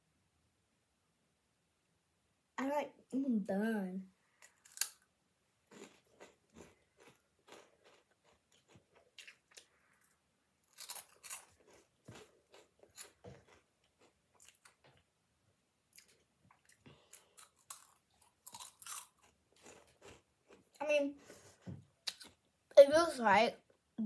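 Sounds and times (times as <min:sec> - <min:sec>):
crunching and chewing snack: 0:04.4 - 0:05.0, 0:05.6 - 0:15.1, 0:15.9 - 0:20.8.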